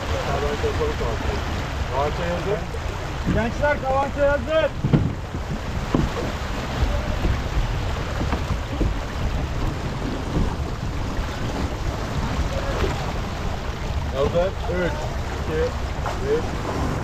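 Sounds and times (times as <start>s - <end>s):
water rushing along hull: 0.0s - 17.0s
wind buffeting microphone: 0.0s - 17.0s
faint knocks on deck: 4.8s - 6.3s.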